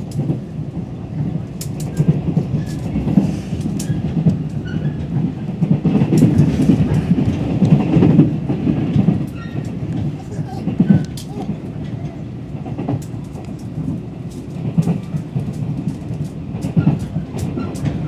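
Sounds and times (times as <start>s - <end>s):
train wheels rumbling on track: 0.0s - 18.0s
sharp clicks and rattles: 12.6s - 18.0s.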